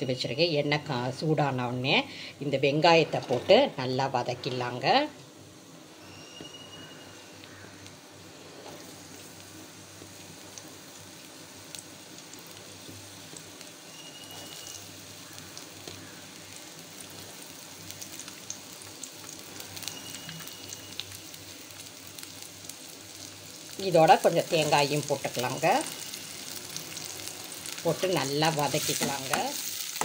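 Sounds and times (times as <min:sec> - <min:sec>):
onions frying in hot oil: 0:00.0 - 0:30.0.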